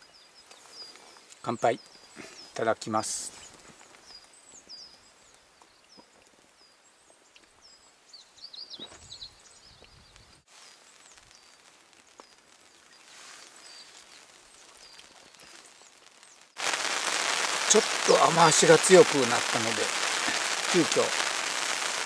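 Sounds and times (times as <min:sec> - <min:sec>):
small birds chirping: 0:00.0 - 0:22.0
heavy rain on a surface: 0:10.5 - 0:22.0.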